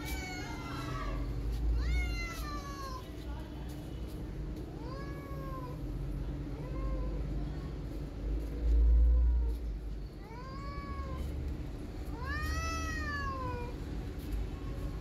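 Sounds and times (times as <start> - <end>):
cat meowing: 12.1 - 13.7.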